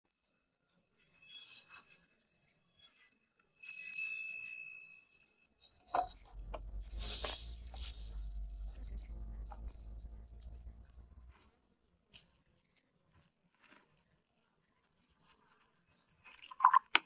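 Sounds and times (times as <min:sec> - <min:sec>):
low steady hum: 0:05.9 - 0:11.7
sugar pouring hiss: 0:06.8 - 0:08.4.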